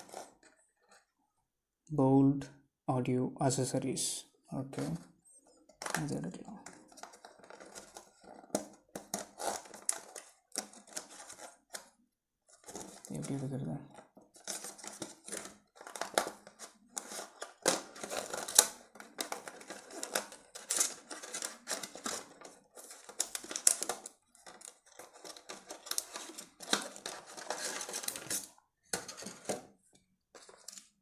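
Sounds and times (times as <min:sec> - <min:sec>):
plastic tray crinkling and clicking: 0:05.7 - 0:31.0.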